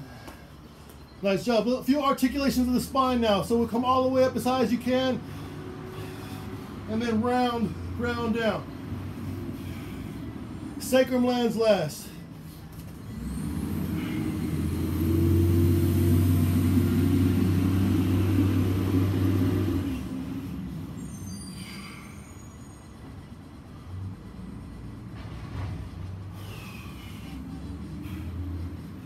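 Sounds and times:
motor vehicle passing: 3.8 - 10.8, 12.4 - 29.0
brief high squeals: 21.0 - 23.0.

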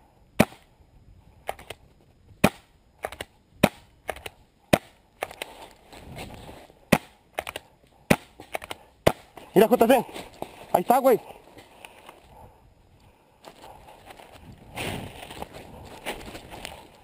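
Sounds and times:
paintball markers firing: 2.4 - 5.5, 6.9 - 9.4.

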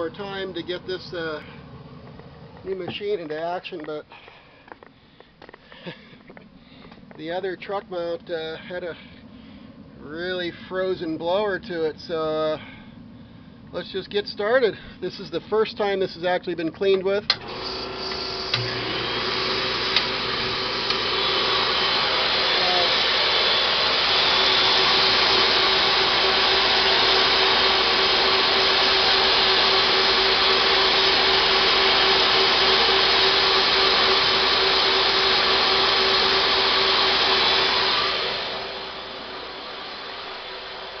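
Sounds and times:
vacuum motors running: 17.3 - 41.0.

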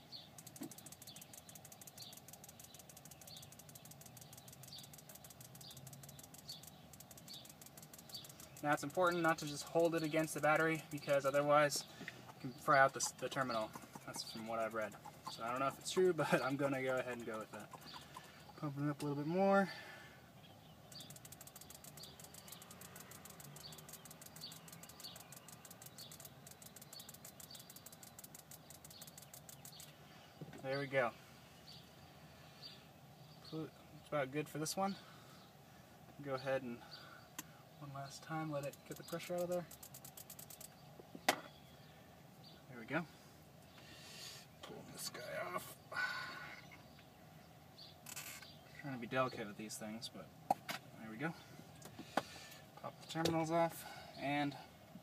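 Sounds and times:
fuel injector fast ticking: 0.1 - 9.3, 12.1 - 18.6, 20.8 - 30.0, 38.6 - 40.8.

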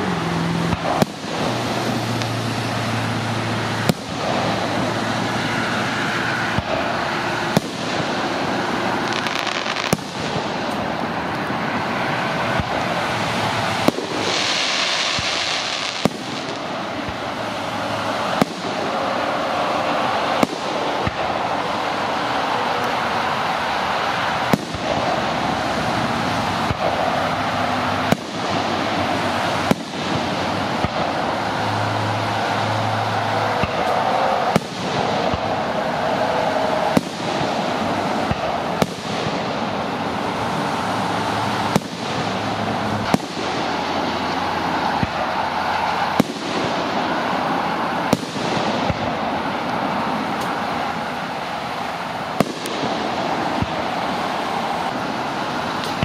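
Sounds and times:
fireworks bursting: 0.0 - 56.0
steady background hiss: 0.0 - 56.0.

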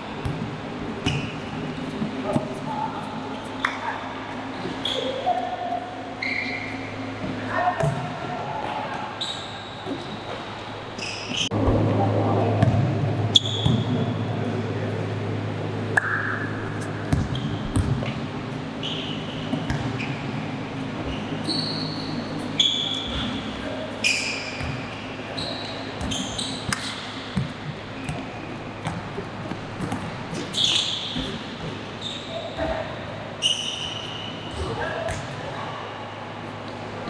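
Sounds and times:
low steady hum: 0.0 - 37.0
sneakers squeaking on court: 0.2 - 2.5, 12.6 - 14.1, 16.7 - 18.2, 18.8 - 35.4
basketball bouncing: 12.6 - 13.0, 17.1 - 18.2, 19.5 - 20.0, 24.6 - 24.8, 26.0 - 30.4, 34.5 - 35.4.

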